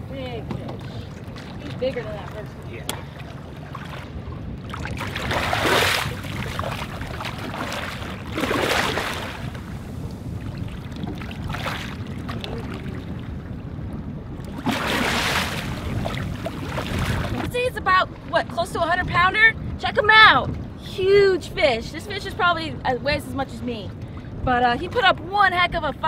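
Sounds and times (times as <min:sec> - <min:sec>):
steady low rumble: 0:00.0 - 0:26.0
fish thrashing and splashing: 0:00.9 - 0:09.7, 0:14.5 - 0:17.5.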